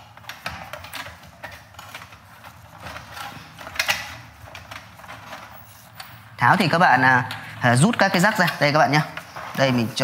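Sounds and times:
hands handling computer parts: 0:00.0 - 0:06.2.

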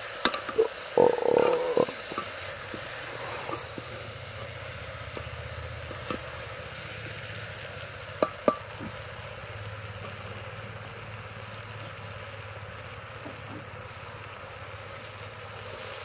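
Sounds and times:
ladle stirring in metal pot: 0:00.2 - 0:04.5
metallic taps on pot: 0:08.2 - 0:08.9.

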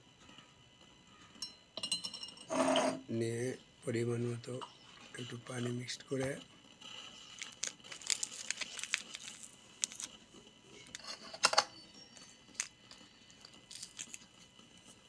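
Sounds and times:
spoon clinking against glass: 0:01.4 - 0:02.6.

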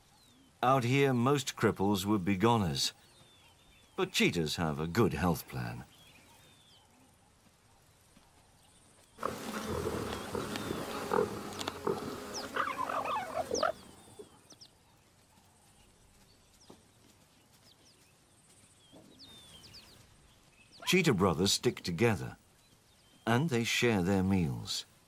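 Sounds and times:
faint bird chirps: 0:05.7 - 0:21.4
cheetahs growling and snarling: 0:09.2 - 0:13.9.

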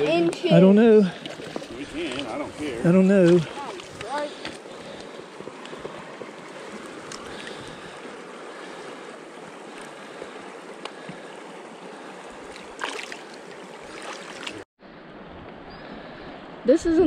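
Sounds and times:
creek water rushing: 0:00.0 - 0:17.0
small splashes of hands: 0:12.4 - 0:14.6.

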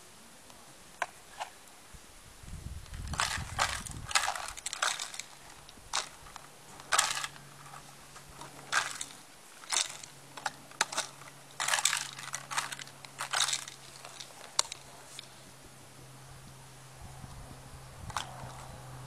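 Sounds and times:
plastic bottle crackling and crunching: 0:02.8 - 0:15.3.

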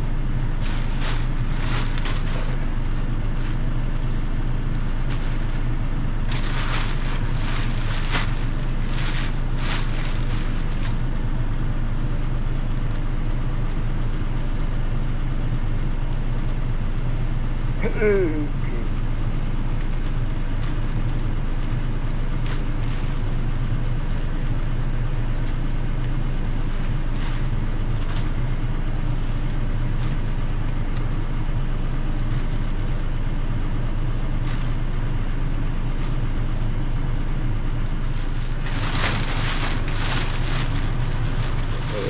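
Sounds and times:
car engine idling: 0:00.0 - 0:42.0
plastic bag rustling: 0:00.4 - 0:11.4, 0:37.9 - 0:42.0.

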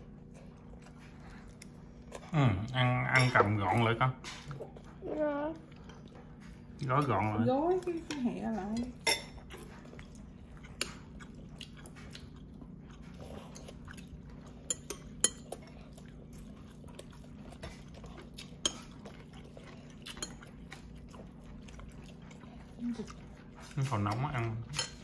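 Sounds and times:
utensils clinking on plates: 0:23.7 - 0:25.0.

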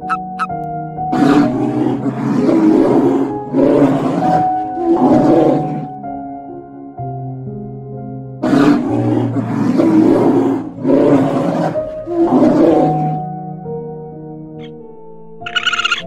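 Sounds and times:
soft background music: 0:00.0 - 0:16.0
large animal roaring: 0:01.1 - 0:06.0, 0:08.4 - 0:13.3.

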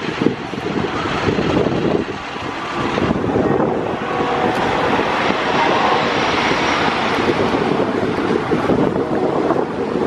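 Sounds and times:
wind buffeting microphone: 0:00.0 - 0:10.0
wooden roller coaster rumbling: 0:00.0 - 0:10.0.

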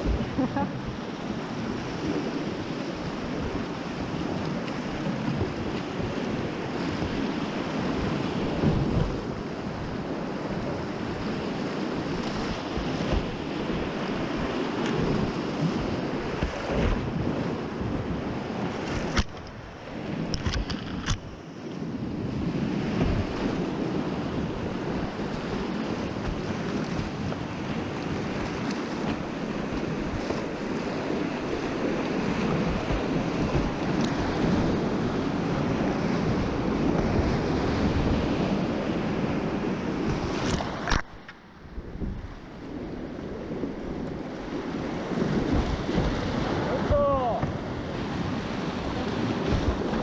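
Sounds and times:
whitewater rapids rushing: 0:44.3 - 0:50.0.

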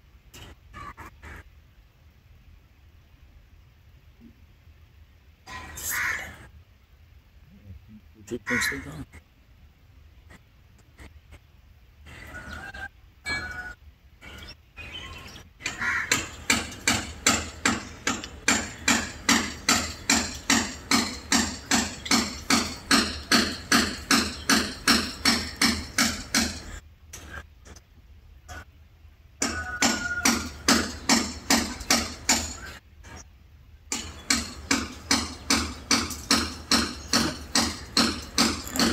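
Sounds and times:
rhythmic hammer knocking: 0:15.6 - 0:26.8, 0:29.4 - 0:32.8, 0:33.9 - 0:38.9.

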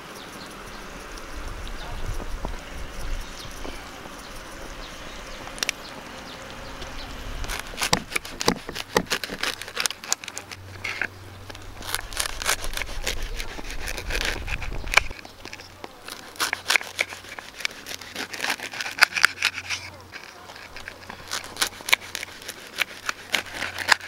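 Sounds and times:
knife sawing through crusty bread: 0:06.8 - 0:24.0.

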